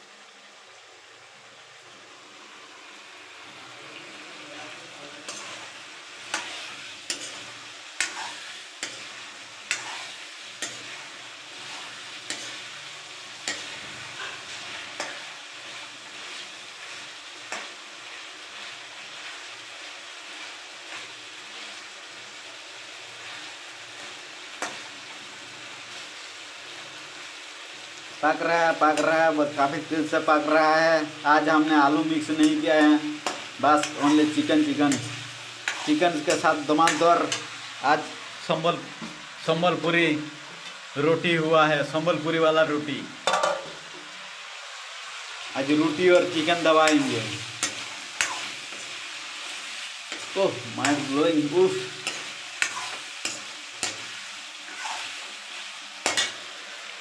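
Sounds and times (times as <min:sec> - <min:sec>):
curry sizzling in pan: 0:00.0 - 0:57.0
metal spoon scraping pan: 0:05.2 - 0:16.5, 0:33.2 - 0:37.5, 0:46.2 - 0:55.3, 0:56.0 - 0:56.6.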